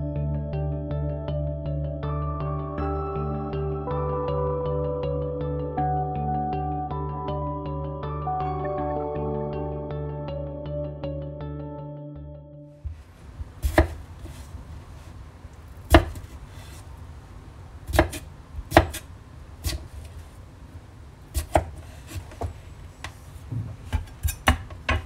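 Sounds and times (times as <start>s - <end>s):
knife chopping on wooden board: 13.6s - 14.0s, 15.9s - 16.3s, 17.9s - 19.0s, 21.3s - 22.6s.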